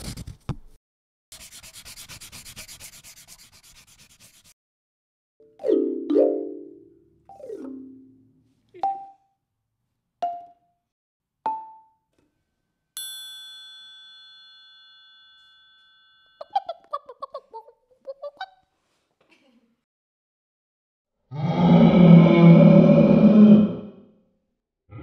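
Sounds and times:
bell-like ding: 13.0 - 16.6.

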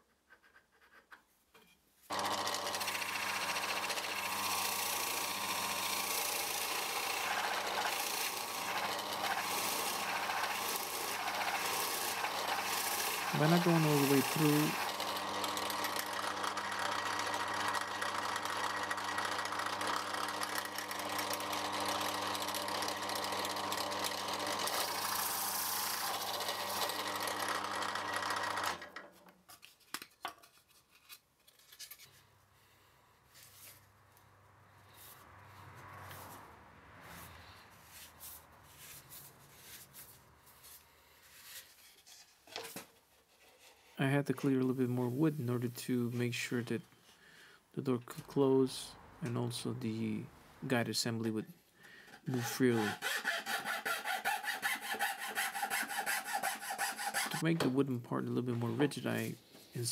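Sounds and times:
drill press boring wood: 2.1 - 29.1, 52.3 - 57.4.

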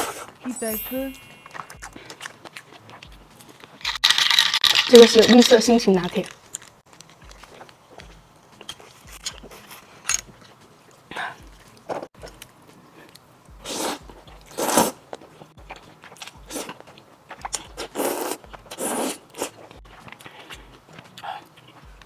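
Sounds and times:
mouth clicks and chewing: 1.4 - 4.8, 6.2 - 22.0
person slurping noodles: 13.6 - 15.0, 16.4 - 16.8, 17.4 - 21.5.

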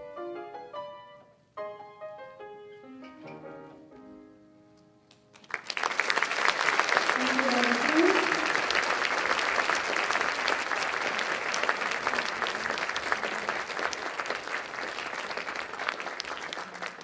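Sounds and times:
audience applauding: 5.3 - 17.0.

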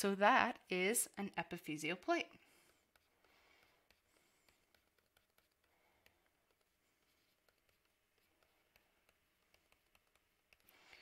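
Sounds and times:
stylus ticking on tablet: 0.5 - 11.0.

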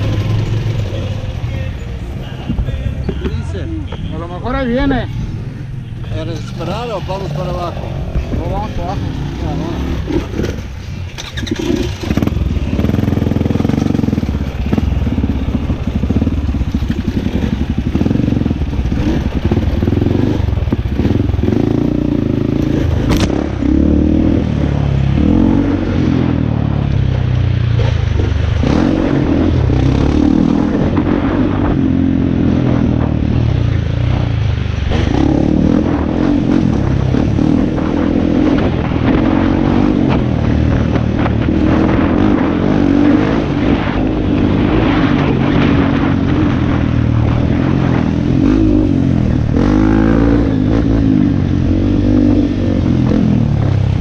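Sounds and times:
dirt bike engine revving: 4.4 - 54.0
sharp click: 23.1 - 23.4.

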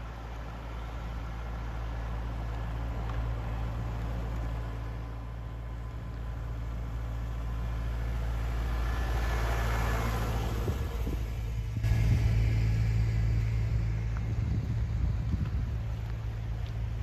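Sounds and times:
tractor engine passing: 0.0 - 17.0.

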